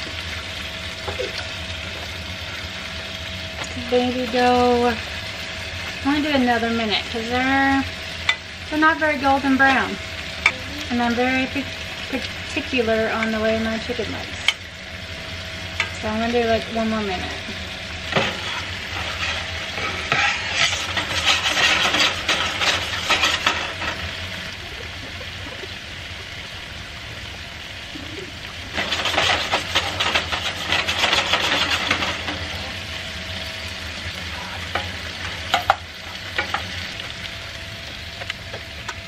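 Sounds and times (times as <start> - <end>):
mushrooms hissing in butter: 0.0 - 38.0
meat sizzling in a frying pan: 0.0 - 39.0
utensil clinking and scraping: 18.1 - 24.1, 28.7 - 32.5.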